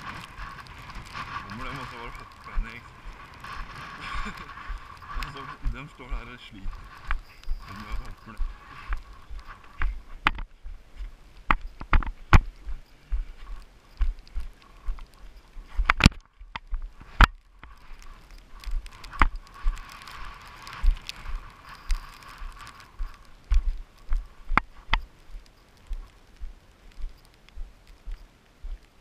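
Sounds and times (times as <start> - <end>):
footsteps over rock: 1.0 - 28.9.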